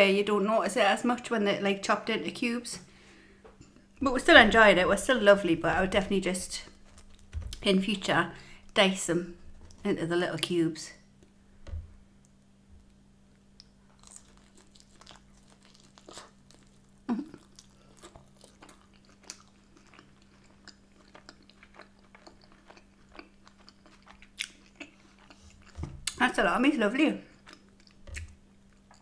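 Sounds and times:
faint steady hum: 0.0s - 29.0s
person chewing food: 6.6s - 7.6s, 12.2s - 26.2s, 27.3s - 29.0s.

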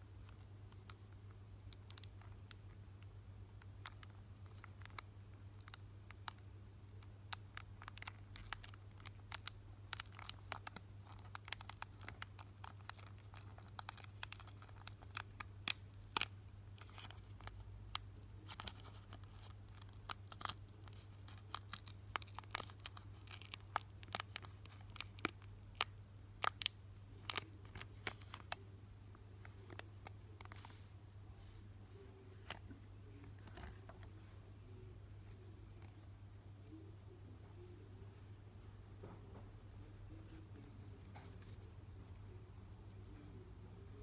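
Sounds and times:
foil wrapper crackling: 7.0s - 17.6s.

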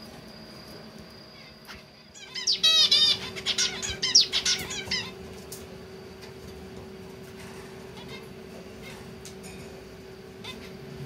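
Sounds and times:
finch chirping: 1.4s - 5.2s, 10.4s - 10.8s.

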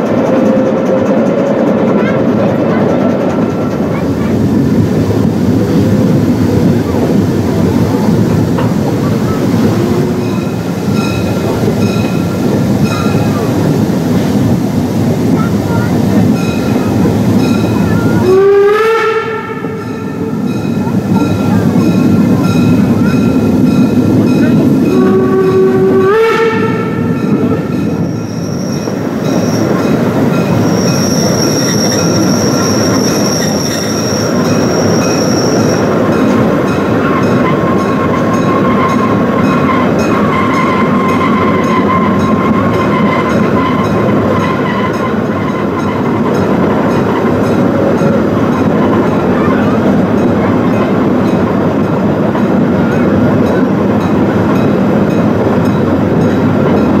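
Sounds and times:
train wheels rumbling and rattling: 0.0s - 57.0s
high-pitched wheel squeal: 28.0s - 29.8s, 30.6s - 35.9s.

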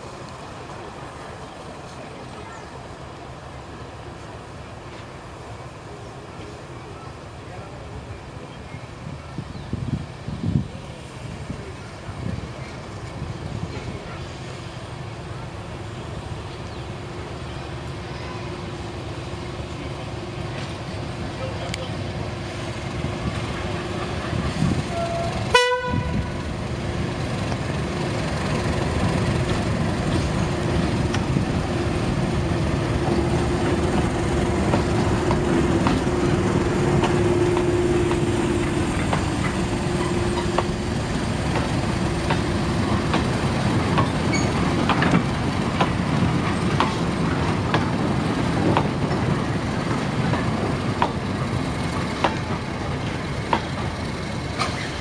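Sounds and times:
diesel locomotive engine: 0.0s - 55.0s
locomotive horn toot: 24.9s - 26.3s
wheels clicking over rail joints: 32.8s - 55.0s.

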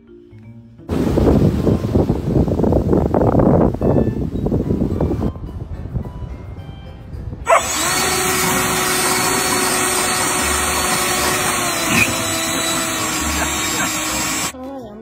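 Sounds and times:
electric motor whirring: 7.5s - 14.6s.

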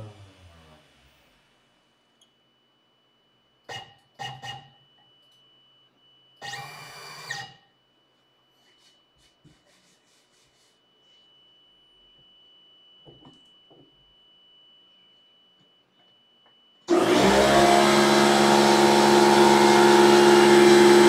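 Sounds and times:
faint steady high tone: 0.0s - 6.6s, 7.6s - 16.9s
light rubbing or scratching: 8.6s - 11.3s
cnc router axes whirring: 16.9s - 21.0s.

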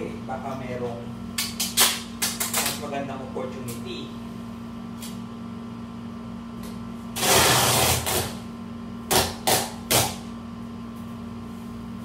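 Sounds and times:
packing tape ripping off roll: 7.2s - 8.4s.

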